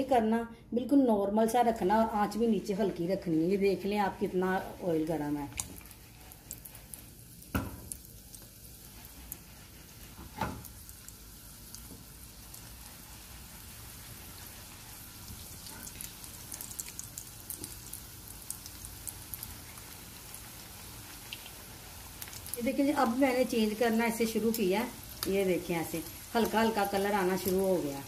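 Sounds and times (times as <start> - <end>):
food sizzling in oil: 2.0 - 28.0
crackling pops of frying: 5.4 - 12.8, 14.9 - 20.4, 21.2 - 28.0.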